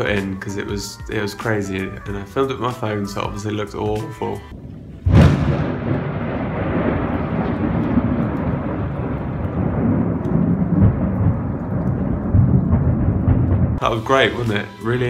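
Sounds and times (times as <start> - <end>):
thunder rumbling: 4.5 - 15.0.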